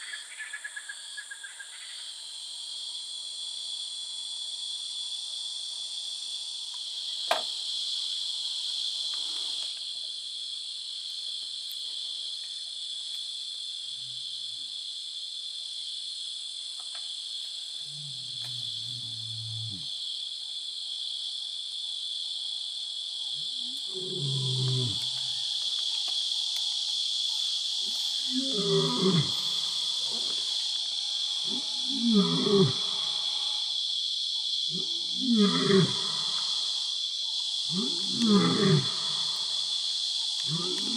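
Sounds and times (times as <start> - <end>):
crickets chirping: 0.0 - 40.9
lion roaring and grunting: 23.8 - 25.2, 28.2 - 29.6, 31.4 - 33.4, 34.8 - 36.5, 37.7 - 39.4, 40.5 - 40.9.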